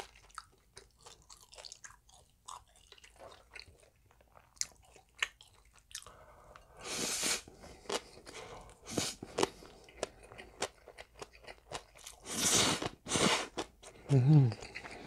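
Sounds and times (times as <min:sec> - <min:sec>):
wet chewing and smacking: 0:00.0 - 0:06.7, 0:07.5 - 0:15.0
noodle slurping: 0:12.2 - 0:13.6.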